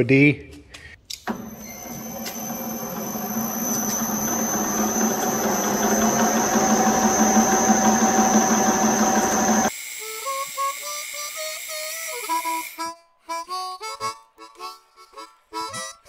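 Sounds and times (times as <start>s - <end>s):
thin high whine: 1.3s - 9.7s
metal lathe cutting: 1.3s - 9.9s.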